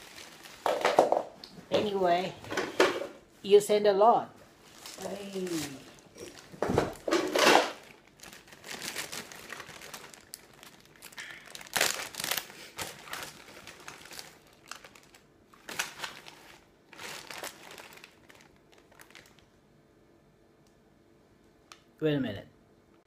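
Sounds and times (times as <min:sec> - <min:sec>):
plastic packaging crinkling: 0:00.0 - 0:01.4, 0:04.5 - 0:19.6.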